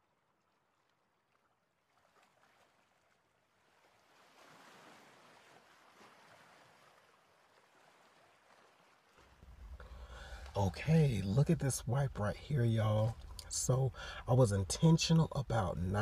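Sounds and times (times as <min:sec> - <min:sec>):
faint rushing hiss: 0:09.4 - 0:14.9.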